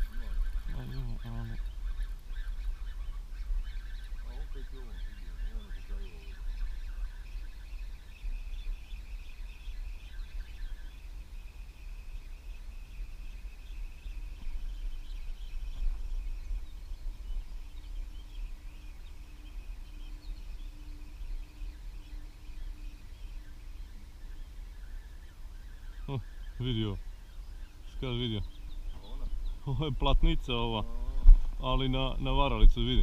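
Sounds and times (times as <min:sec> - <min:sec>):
birds chirping: 0:00.0 - 0:33.0
faint steady hum: 0:00.0 - 0:33.0
insects chirping: 0:00.0 - 0:33.0
low rumble on microphone: 0:00.0 - 0:33.0.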